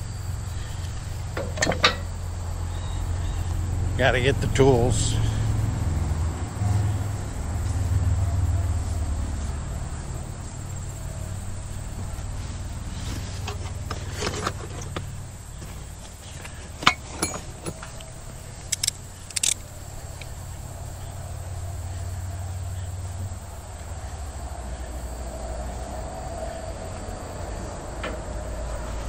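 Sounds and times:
faint insect trill: 0.0s - 29.0s
steady low rumble: 0.0s - 29.0s
hand tools clinking: 1.3s - 2.2s, 16.4s - 19.6s.

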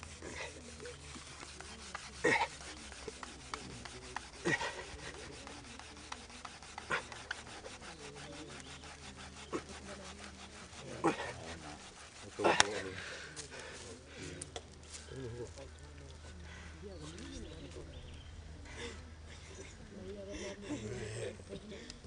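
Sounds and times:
sawing strokes on dry wood: 0.0s - 14.4s.

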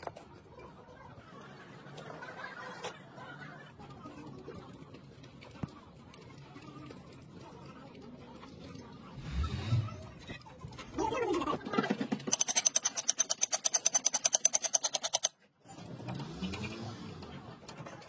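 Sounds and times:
ratchet wrench clicking: 12.3s - 15.4s.

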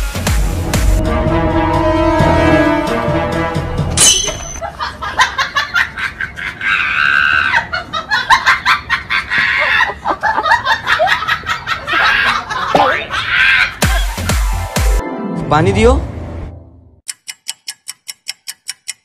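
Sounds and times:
person laughing hard: 4.6s - 14.1s.

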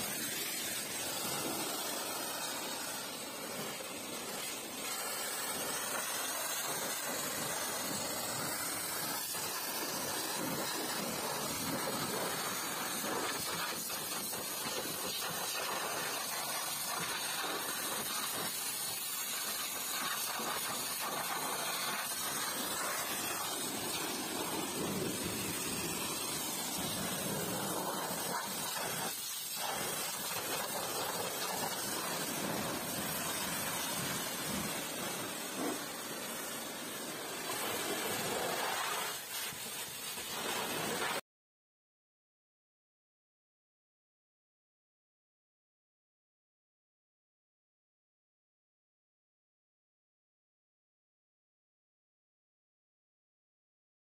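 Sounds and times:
pressure washer spray hissing: 0.0s - 41.2s.

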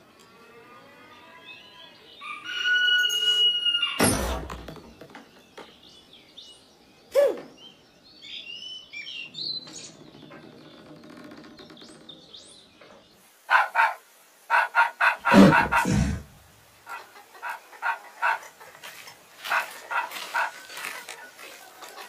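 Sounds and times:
birds chirping and twittering: 0.0s - 22.0s
cartoon thump: 4.0s - 4.9s.

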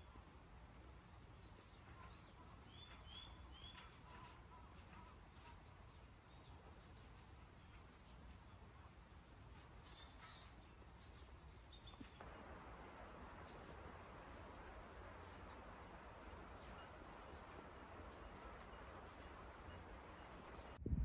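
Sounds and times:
background hiss: 0.0s - 20.8s
small birds chirping: 0.0s - 20.8s
bird call: 9.8s - 10.8s.

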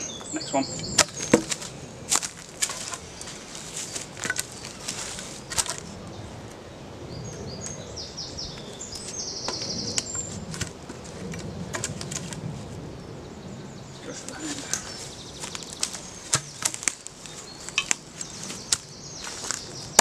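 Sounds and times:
wooden poles knocking and rubbing: 1.0s - 1.7s, 16.3s - 17.0s.

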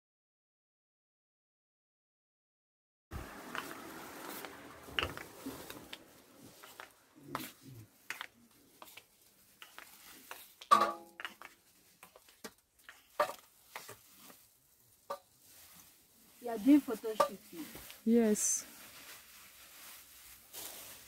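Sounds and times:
objects being handled clicking: 8.0s - 14.0s.

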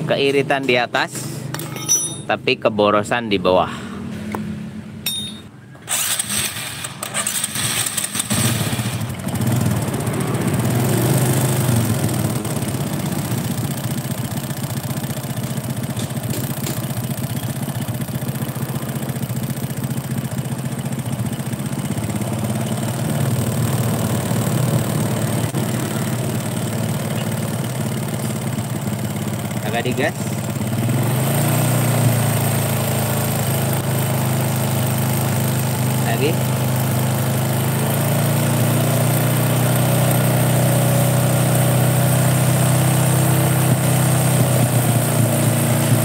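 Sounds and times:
motorcycle engine turning over: 5.0s - 46.0s.

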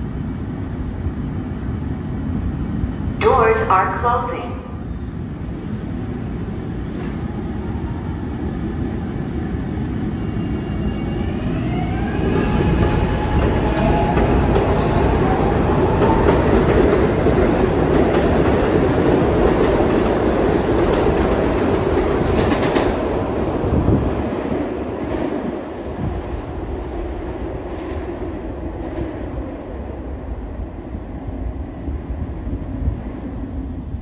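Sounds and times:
train wheels on rails: 8.6s - 29.4s.

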